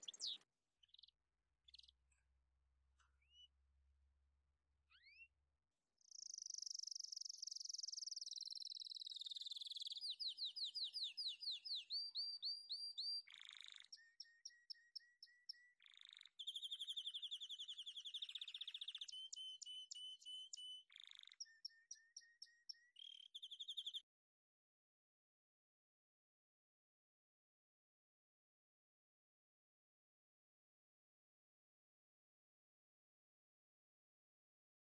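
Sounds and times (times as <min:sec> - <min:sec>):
songbird singing trills: 0:00.0 - 0:01.0, 0:06.1 - 0:24.0.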